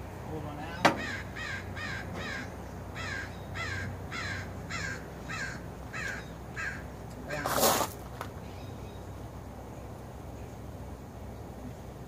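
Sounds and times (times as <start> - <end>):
bird calling: 0.9 - 7.4.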